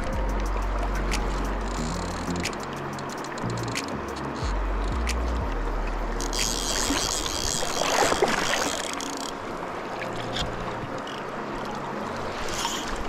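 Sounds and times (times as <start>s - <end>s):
river water rushing and splashing: 0.0s - 13.0s.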